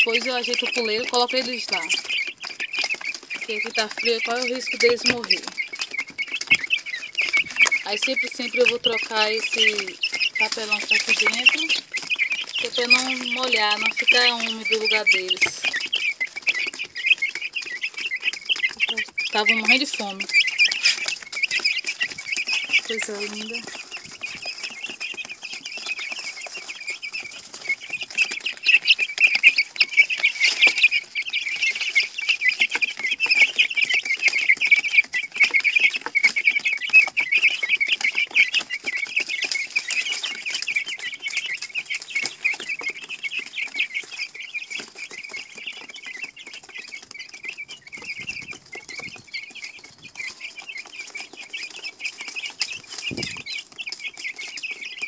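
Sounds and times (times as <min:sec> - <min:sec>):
baby chicks peeping: 0:00.0 - 0:55.0.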